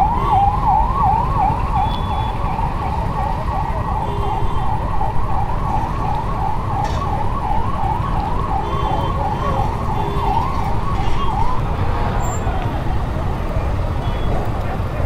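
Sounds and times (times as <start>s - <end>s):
low rumble of vehicle: 0.0s - 15.0s
siren warbling: 5.4s - 11.6s.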